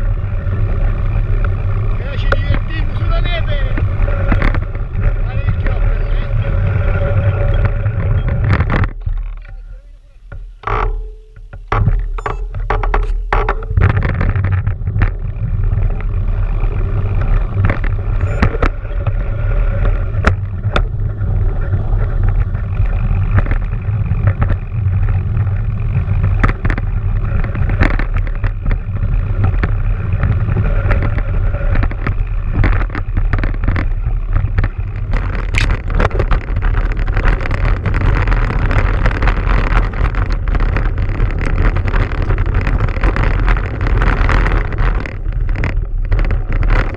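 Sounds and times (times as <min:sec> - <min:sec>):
bike knocking and rattling: 0:00.0 - 0:46.9
wind buffeting microphone: 0:00.0 - 0:46.9.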